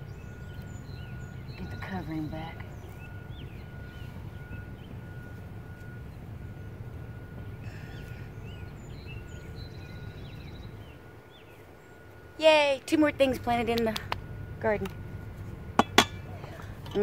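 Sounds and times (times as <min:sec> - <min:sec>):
birds chirping and trilling: 0:00.0 - 0:13.4.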